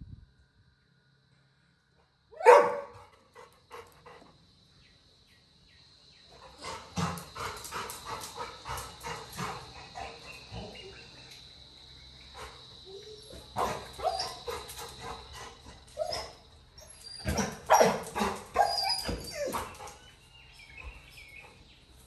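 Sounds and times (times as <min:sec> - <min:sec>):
dog barking: 0:02.4 - 0:03.0, 0:17.3 - 0:18.8.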